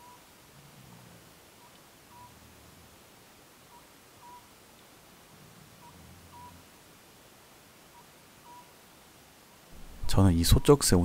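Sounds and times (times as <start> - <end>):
owl calling faintly: 3.7 - 4.6, 7.9 - 8.8.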